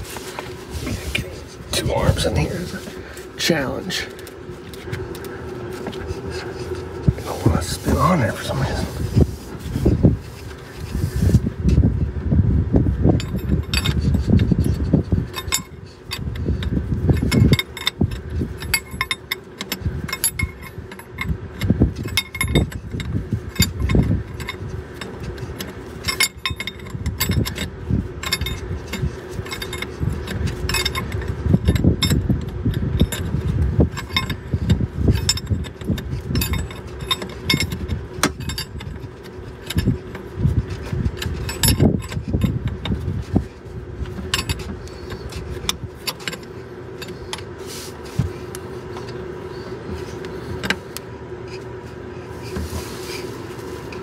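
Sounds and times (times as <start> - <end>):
wrench clinking on metal fitting: 33.9 - 39.0.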